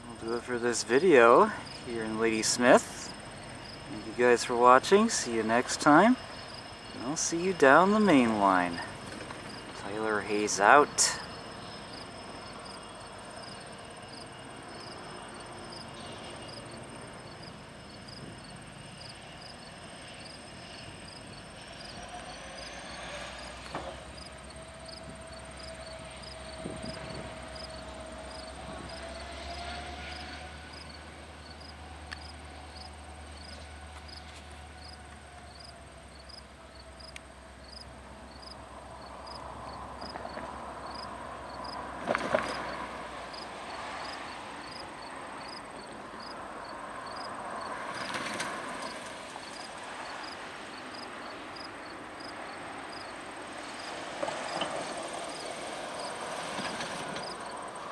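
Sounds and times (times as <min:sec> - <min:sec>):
diesel locomotive rumbling: 0:00.0 - 0:57.9
insects chirping: 0:00.0 - 0:57.9.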